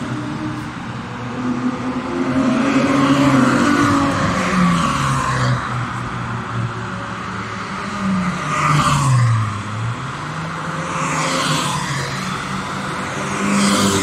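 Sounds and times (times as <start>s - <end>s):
race cars accelerating past: 0.0s - 6.0s.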